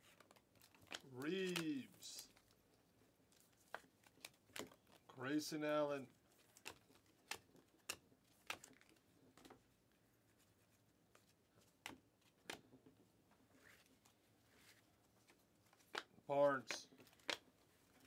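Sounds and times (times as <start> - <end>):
trading cards snapping: 0.2 - 2.4, 6.5 - 9.5.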